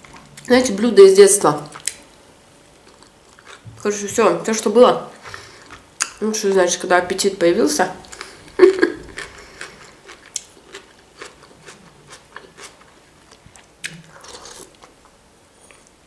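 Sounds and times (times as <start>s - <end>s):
chewing with wet mouth clicks: 1.6s - 2.0s, 2.8s - 3.7s, 5.6s - 6.2s, 9.1s - 15.9s.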